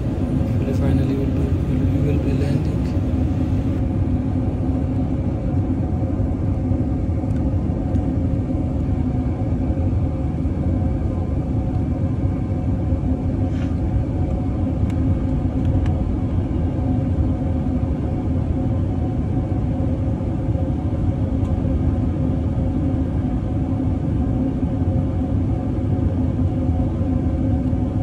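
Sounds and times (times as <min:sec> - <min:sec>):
aircraft cabin engine rumble: 0:00.0 - 0:28.0.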